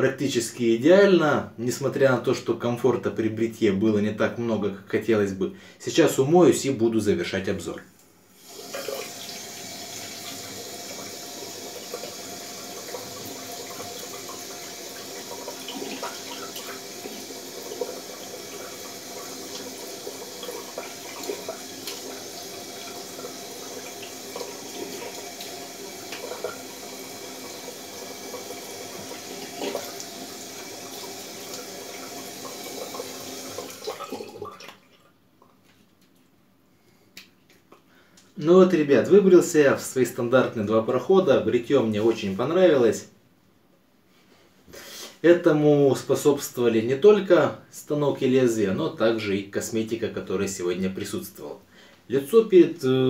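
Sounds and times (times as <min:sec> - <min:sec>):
tap running into a sink: 0:08.6 - 0:34.8
water splashes: 0:08.6 - 0:35.1.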